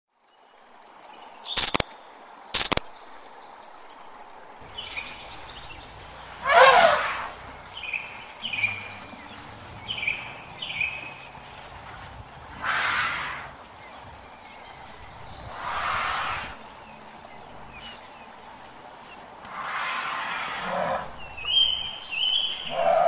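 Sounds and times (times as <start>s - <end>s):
sharp clicks: 1.6s - 1.8s, 2.6s - 2.8s
short chirps: 1.6s - 1.8s, 2.6s - 2.8s.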